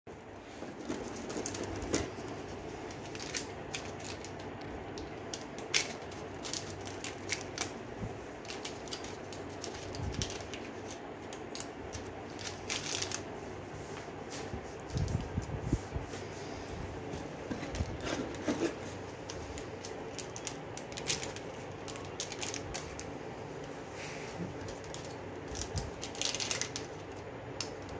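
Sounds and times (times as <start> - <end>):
plastic items clicking and tapping: 17.5 - 23.1.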